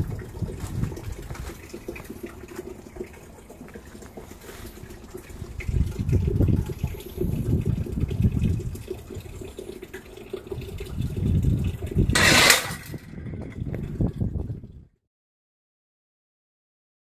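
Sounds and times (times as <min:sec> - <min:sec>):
wind buffeting microphone: 0:00.0 - 0:02.4, 0:04.7 - 0:15.0.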